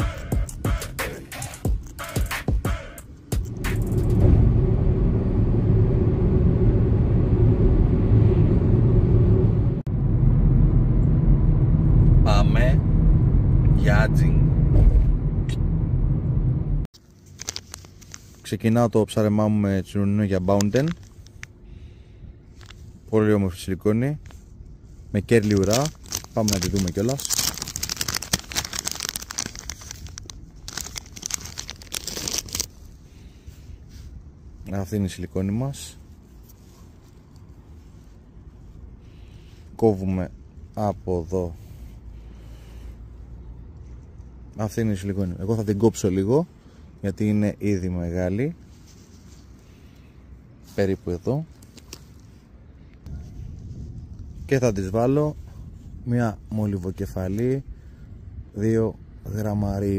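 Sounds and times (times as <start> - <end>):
car driving road noise: 3.1 - 16.9, 24.0 - 56.0
plastic packet crinkling: 17.2 - 18.3, 25.2 - 33.0.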